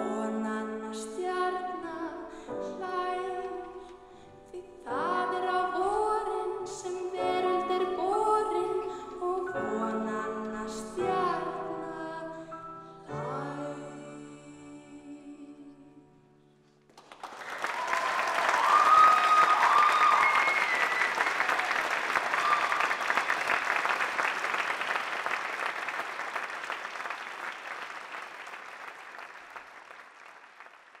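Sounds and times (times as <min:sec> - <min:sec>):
audience applauding: 0:16.9 - 0:31.0
audience whooping: 0:17.2 - 0:29.4.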